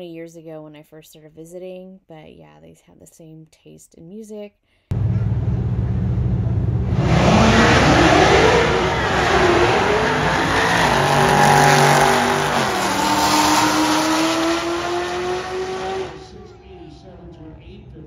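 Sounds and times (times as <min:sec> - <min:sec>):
car engine at full throttle: 0:04.9 - 0:16.4.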